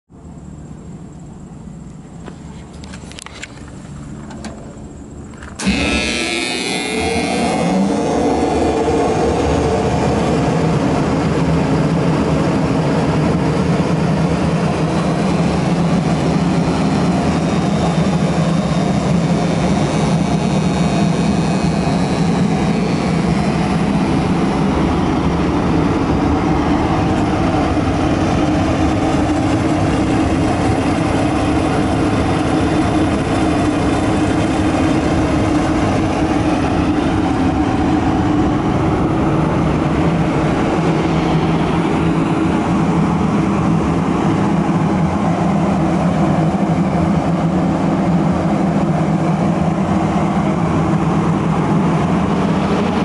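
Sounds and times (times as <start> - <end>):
dust collector blower humming: 4.7 - 53.0.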